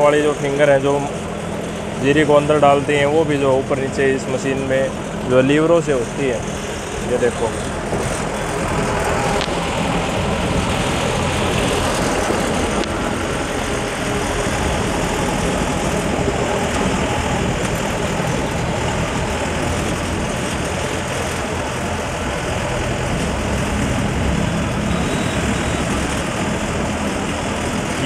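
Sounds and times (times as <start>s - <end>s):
harvester engine running: 0.0s - 28.0s.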